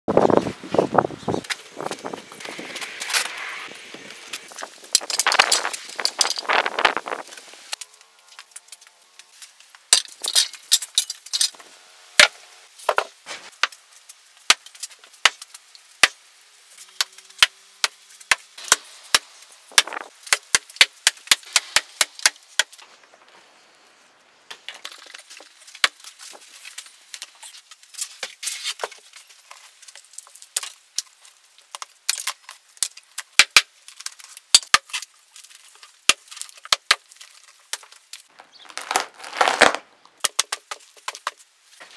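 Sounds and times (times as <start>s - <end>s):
hatchet chopping wood: 17.4s - 22.7s.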